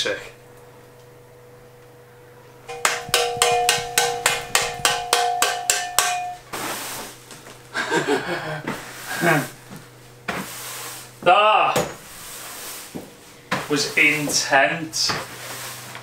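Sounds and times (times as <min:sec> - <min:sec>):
bike frame knocked and ringing: 0:02.7 - 0:06.5.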